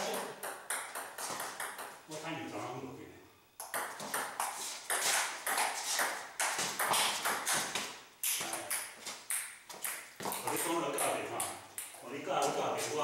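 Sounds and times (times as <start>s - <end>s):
table tennis ball bouncing: 0.0s - 2.0s, 3.6s - 12.0s.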